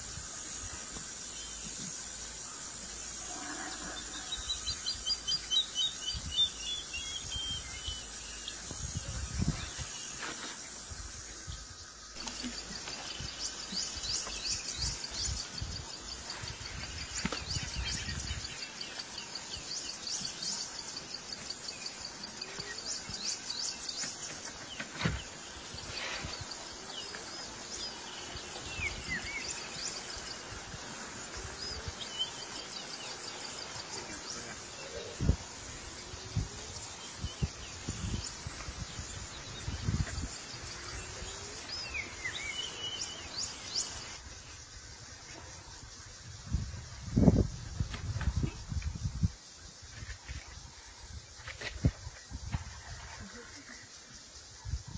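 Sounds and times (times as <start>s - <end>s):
insects: 0.0s - 54.9s
birds chirping: 0.6s - 44.2s.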